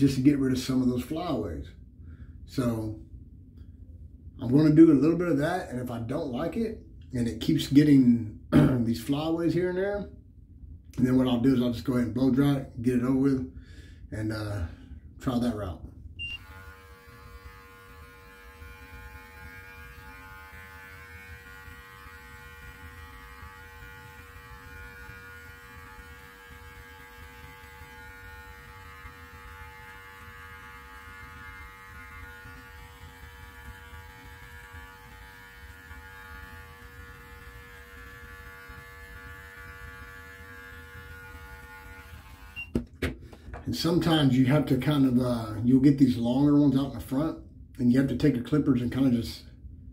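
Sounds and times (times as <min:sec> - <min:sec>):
electric beard clippers humming: 0:16.2 - 0:43.0.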